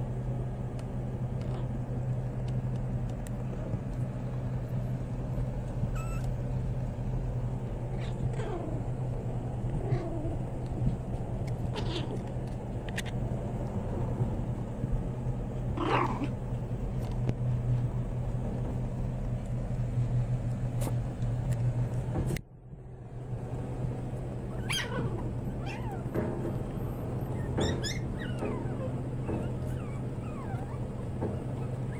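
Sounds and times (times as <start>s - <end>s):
steady low hum: 0.0s - 31.9s
puppies squealing and yelping: 6.0s - 6.2s, 24.4s - 31.9s.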